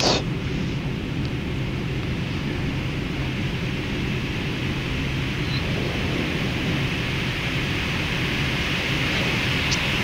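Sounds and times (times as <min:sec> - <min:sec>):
airflow rushing: 0:00.0 - 0:01.2
aircraft engine rumble: 0:00.0 - 0:10.0.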